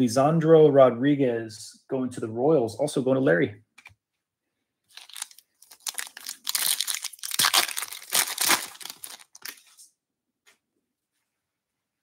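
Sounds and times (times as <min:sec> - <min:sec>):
foil wrapper tearing and crinkling: 0:04.9 - 0:09.8.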